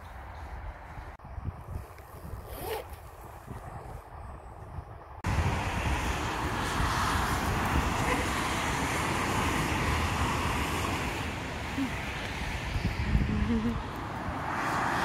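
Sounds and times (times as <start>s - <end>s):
low traffic rumble: 0.0s - 15.0s
tyres hissing on wet road: 5.3s - 13.1s, 14.0s - 15.0s.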